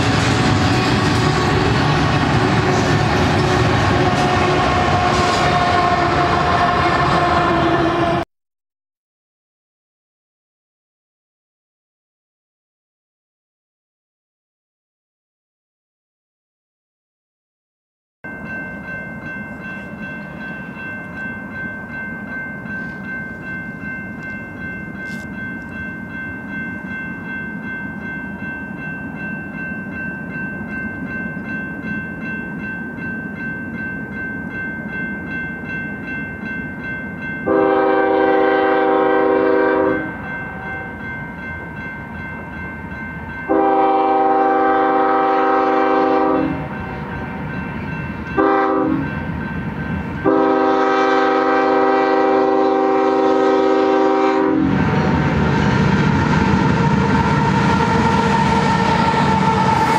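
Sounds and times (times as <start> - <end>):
locomotive air horn blasts: 0.0 - 8.2, 37.5 - 40.9, 43.5 - 47.1, 48.4 - 49.1, 50.2 - 55.4, 56.1 - 59.9
train rumble: 0.0 - 8.2, 18.3 - 59.9
crossing warning bell: 18.2 - 59.9.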